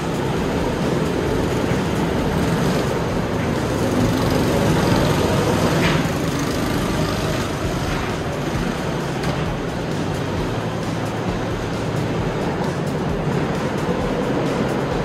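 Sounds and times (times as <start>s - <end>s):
go-kart engines running: 0.0s - 15.0s.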